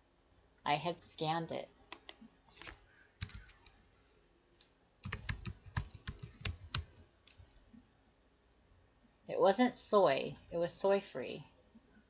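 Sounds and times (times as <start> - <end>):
typing on computer keyboard: 1.9 - 3.8, 5.0 - 7.5.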